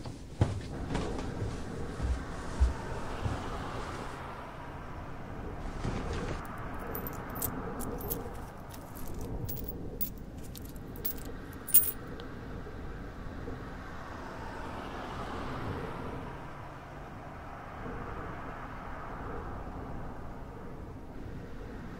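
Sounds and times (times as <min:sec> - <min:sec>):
low background noise: 0:05.6 - 0:12.7
coins clinking into cloth cap: 0:06.5 - 0:12.1.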